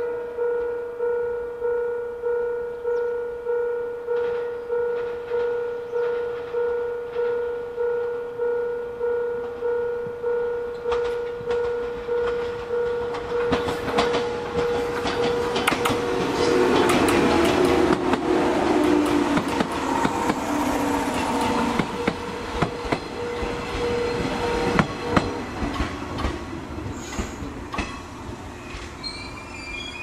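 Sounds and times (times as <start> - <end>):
level crossing alarm bell ringing: 0.0 - 25.8
train wheels clattering over rails: 10.9 - 29.3.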